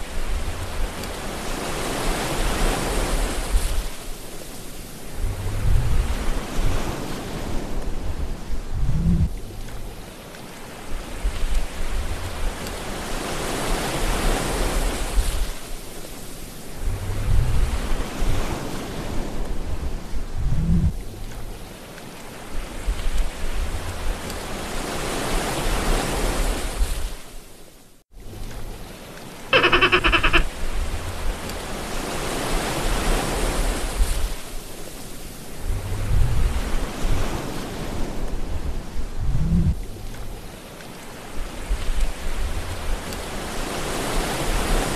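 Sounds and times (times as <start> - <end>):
water rushing along canoe hull: 0.0 - 44.9
wind buffeting microphone: 5.1 - 10.0, 16.7 - 21.6, 35.6 - 40.3.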